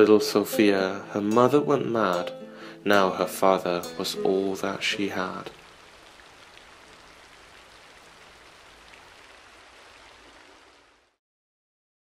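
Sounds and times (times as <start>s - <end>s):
steady rain: 4.8s - 11.2s.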